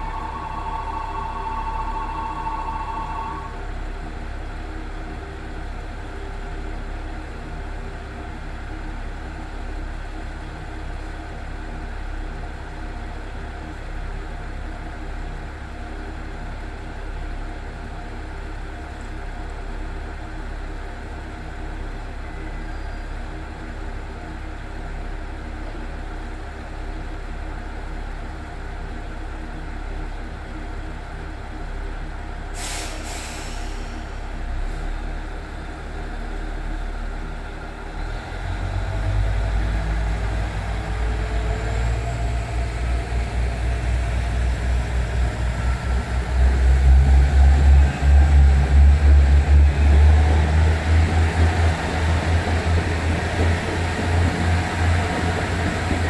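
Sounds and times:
train equipment humming with tones: 0.0s - 56.0s
short air hiss: 32.6s - 34.8s.

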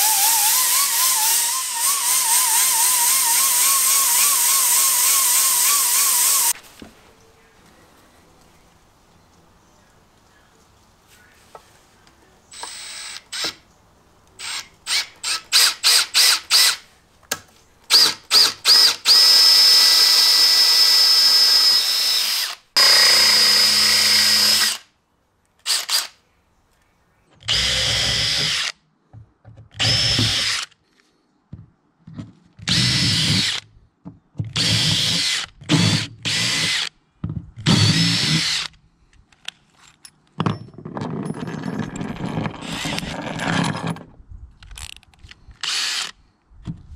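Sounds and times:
cordless drill whining: 0.0s - 6.6s, 12.6s - 13.6s, 17.9s - 24.8s, 27.4s - 28.7s, 29.8s - 30.8s, 32.6s - 33.6s, 34.6s - 36.9s, 37.6s - 38.7s, 45.6s - 46.2s.

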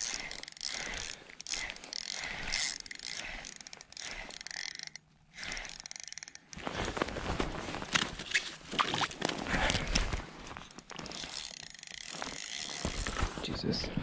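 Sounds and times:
fishing reel clicking and whirring: 0.0s - 6.9s, 10.6s - 13.3s
footsteps crunching on icy snow: 6.6s - 13.6s.

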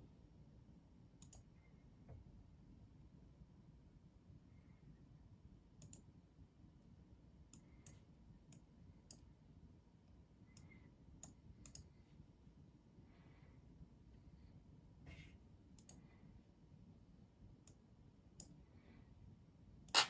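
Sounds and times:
faint computer mouse clicks: 1.2s - 1.5s, 5.8s - 6.1s, 10.5s - 11.9s, 15.8s - 16.0s.

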